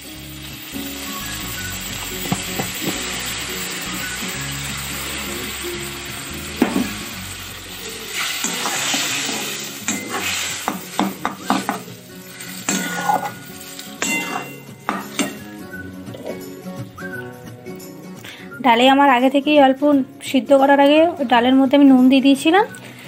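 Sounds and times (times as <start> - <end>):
lentils sizzling in hot oil: 0.0 - 16.7
metal spatula scraping pan: 8.1 - 11.8, 12.4 - 15.5.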